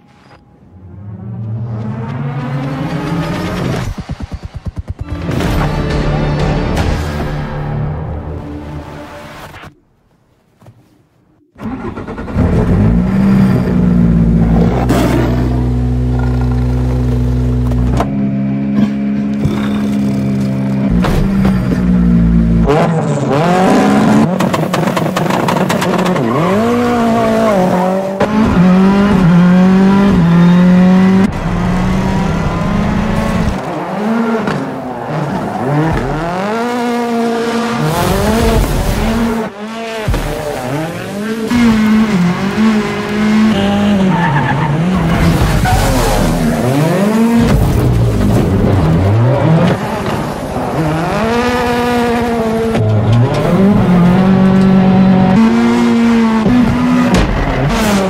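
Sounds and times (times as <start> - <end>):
tyres skidding: 0.0 - 58.0
rally car engine revving hard: 11.6 - 20.2, 20.8 - 58.0.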